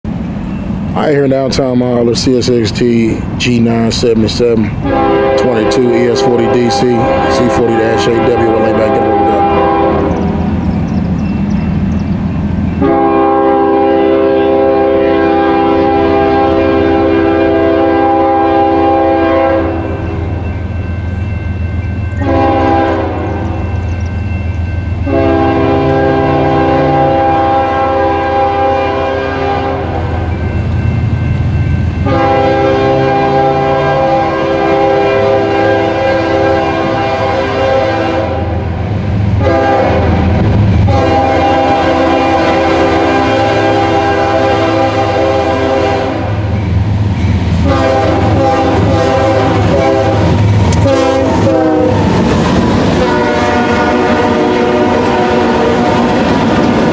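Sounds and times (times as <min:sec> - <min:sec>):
diesel locomotive rumble: 0:00.0 - 0:56.9
train air horn blasts: 0:04.7 - 0:10.4, 0:12.8 - 0:20.2, 0:22.2 - 0:23.7, 0:25.0 - 0:30.4, 0:32.0 - 0:38.7, 0:39.3 - 0:46.6, 0:47.5 - 0:52.3, 0:52.9 - 0:56.9
train wheels clacking on rails: 0:46.5 - 0:56.9.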